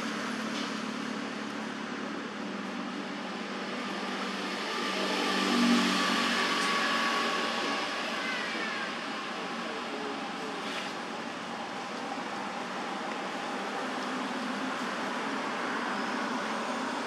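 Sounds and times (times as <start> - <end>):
outdoor background hum: 0.0 - 17.0
vehicle passing: 4.3 - 9.2.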